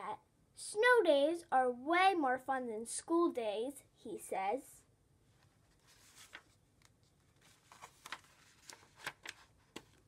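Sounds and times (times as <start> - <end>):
book page turning: 5.4 - 10.0
small paper clicks: 6.2 - 10.0.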